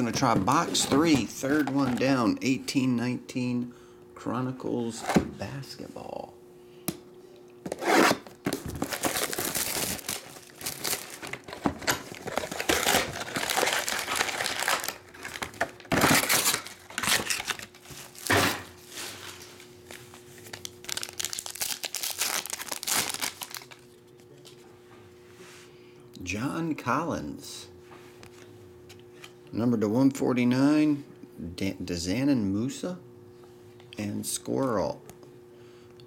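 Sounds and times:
foil packs crinkling and tearing: 8.1 - 24.0.

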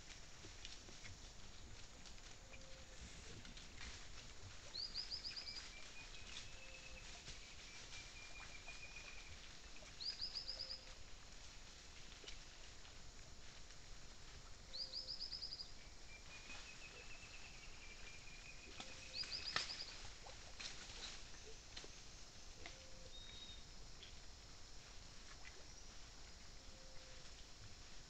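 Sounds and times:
animals rustling in leaf litter: 0.0 - 14.8, 15.8 - 23.3.

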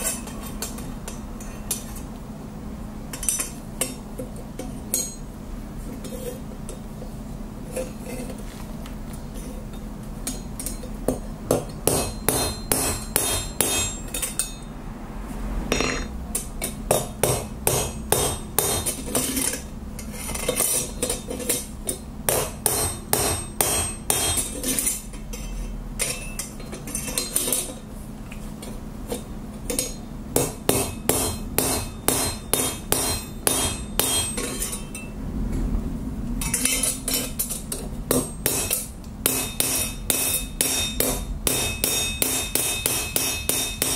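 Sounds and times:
hammer striking steel on anvil: 4.6 - 5.2, 10.2 - 14.7, 15.7 - 19.3, 22.3 - 27.6, 29.7 - 35.1, 36.4 - 43.9.

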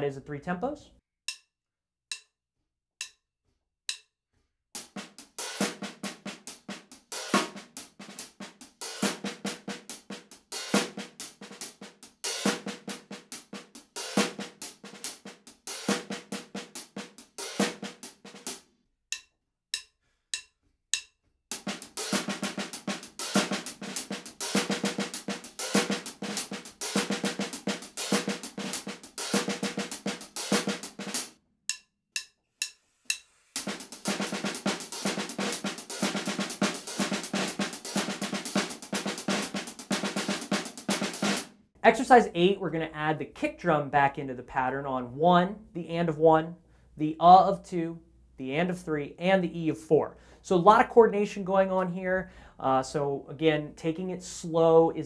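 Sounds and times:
hi-hat pattern: 19.1 - 42.3.

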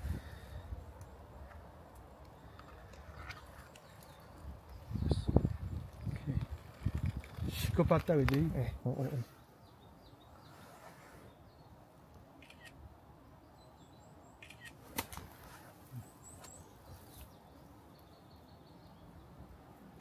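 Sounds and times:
faint high bird chirps: 12.4 - 12.8, 13.5 - 14.8.

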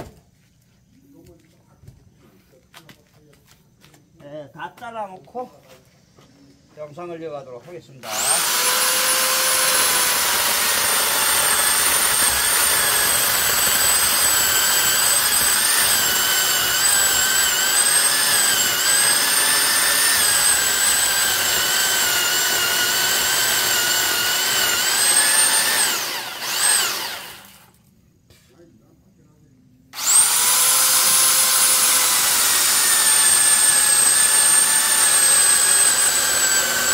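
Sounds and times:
electric chainsaw cutting log: 8.0 - 27.8, 30.0 - 36.9.

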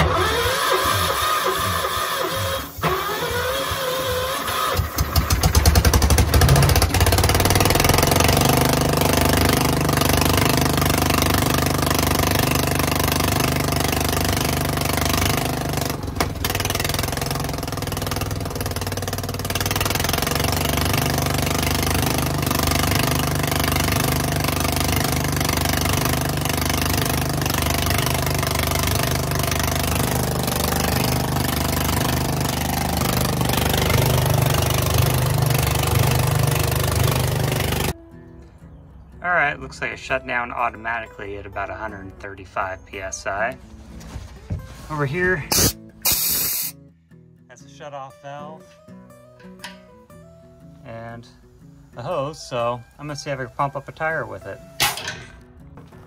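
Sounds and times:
air compressor pump running: 0.0 - 38.0, 45.4 - 46.8
engine cranking and running: 0.0 - 38.0.

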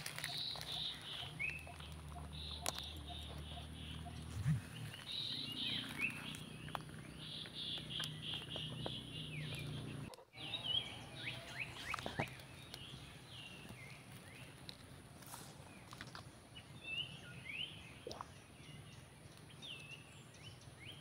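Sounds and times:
leaves rustling: 0.0 - 8.8
birds chirping: 0.0 - 21.0.

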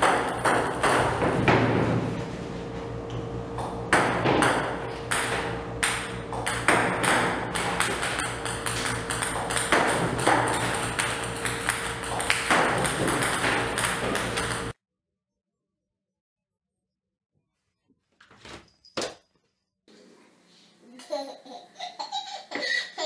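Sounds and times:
steady hum: 0.0 - 14.8
table tennis balls clicking: 5.1 - 14.7.

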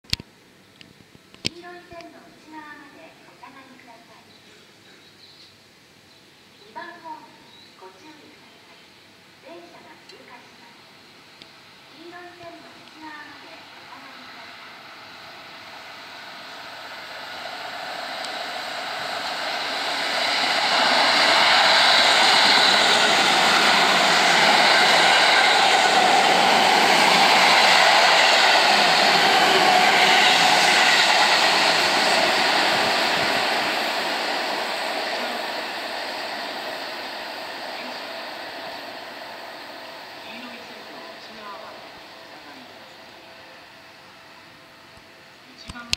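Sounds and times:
electric train passing: 9.1 - 45.6.

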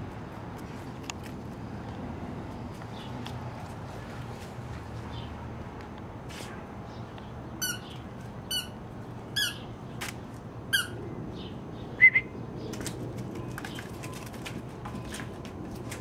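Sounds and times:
squeaky ball toy squeaking: 7.6 - 9.6, 10.7 - 11.0.

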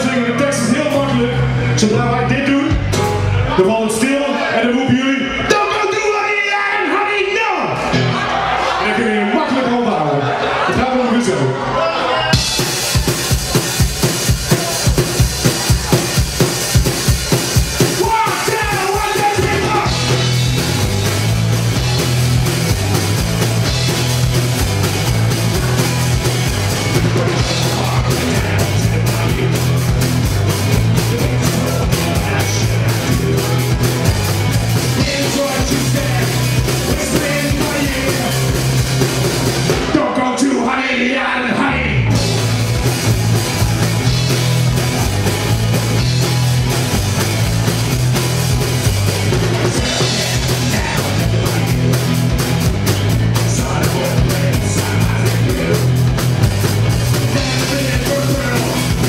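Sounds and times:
bass line: 0.0 - 9.1, 10.3 - 59.0
live rock band playing: 0.0 - 41.1, 41.8 - 59.0
drum beat: 12.4 - 40.0, 42.1 - 59.0.

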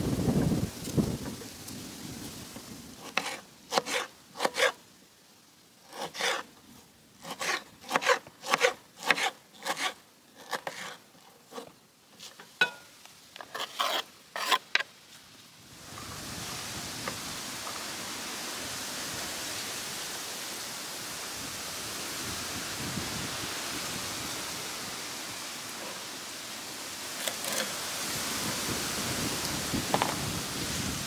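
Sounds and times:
knife slicing on cutting board: 7.2 - 11.6
steady hiss: 11.0 - 31.0.

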